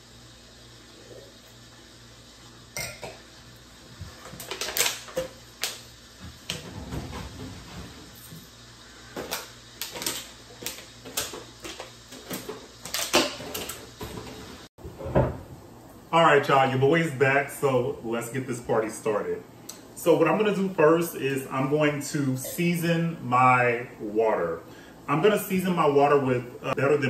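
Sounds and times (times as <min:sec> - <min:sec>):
plastic bottle crinkling: 0:04.2 - 0:05.8.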